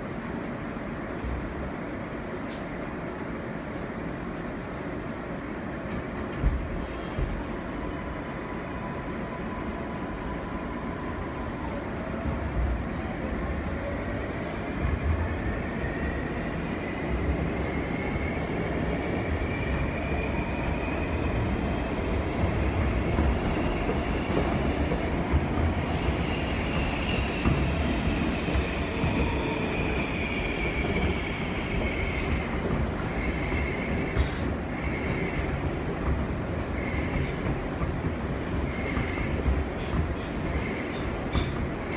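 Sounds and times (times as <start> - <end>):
wheels rumbling on rail: 17.1 - 41.9.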